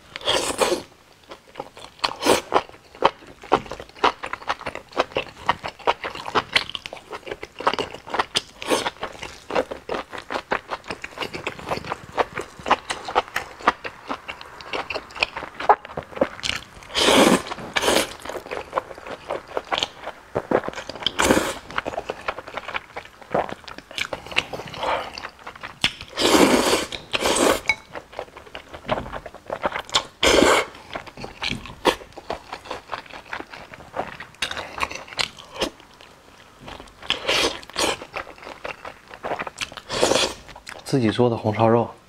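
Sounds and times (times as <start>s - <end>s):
wet chewing and lip-smacking: 0.2s - 40.9s
loud slurps of noodles: 16.9s - 18.2s, 26.1s - 27.7s, 39.9s - 40.4s.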